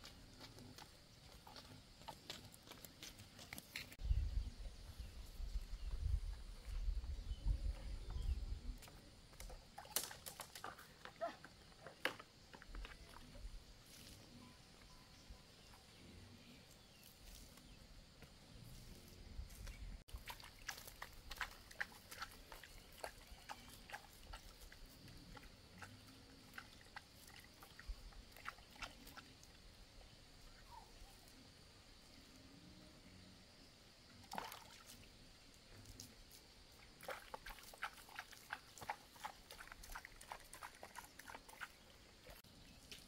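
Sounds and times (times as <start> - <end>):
light ticks and splashes on plants: 8.8 - 14.2, 19.0 - 29.6, 35.7 - 43.0.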